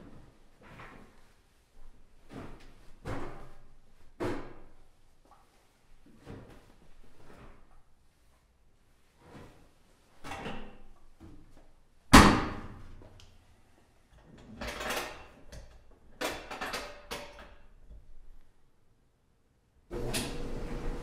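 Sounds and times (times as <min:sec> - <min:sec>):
rustling clothes: 0:00.0 - 0:12.1.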